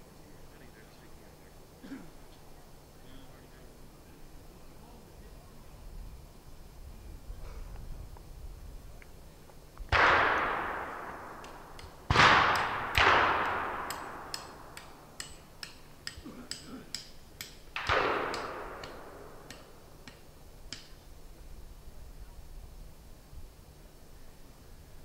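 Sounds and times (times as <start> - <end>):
distant gunshots echoing: 9.9 - 15.2, 17.7 - 20.0.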